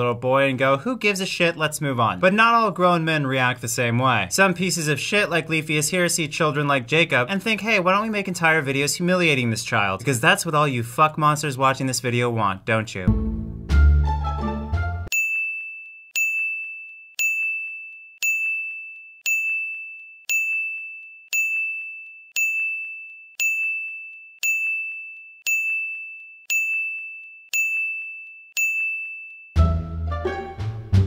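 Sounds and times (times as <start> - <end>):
high bell ding: 15.1 - 29.6.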